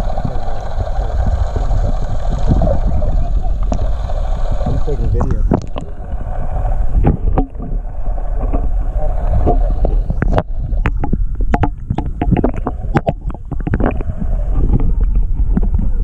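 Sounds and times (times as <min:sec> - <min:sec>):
muffled underwater rumble: 0:00.0 - 0:16.0
sharp clicks and knocks: 0:09.4 - 0:14.0.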